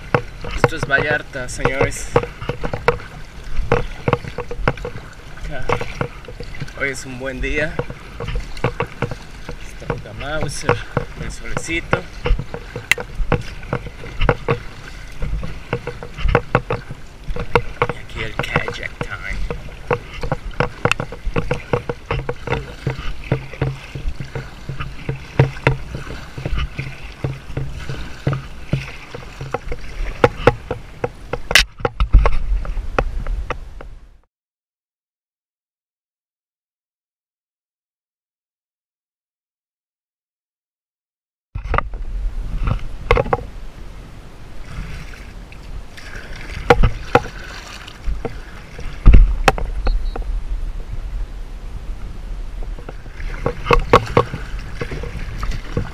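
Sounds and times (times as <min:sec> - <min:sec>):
sharp clicks and knocks: 0:00.0 - 0:33.9, 0:42.6 - 0:43.5, 0:46.6 - 0:47.4, 0:49.0 - 0:50.3, 0:52.6 - 0:55.9
paddle strokes splashing: 0:00.0 - 0:34.0, 0:41.6 - 0:55.9
light water noise: 0:00.0 - 0:34.2, 0:41.6 - 0:55.9
steady low rumble: 0:47.9 - 0:55.9.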